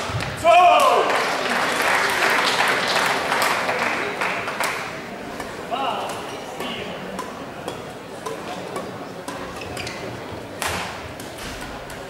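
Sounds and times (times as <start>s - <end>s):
rackets striking shuttlecocks: 4.4s - 12.0s
shoes squeaking on floor: 9.5s - 10.4s.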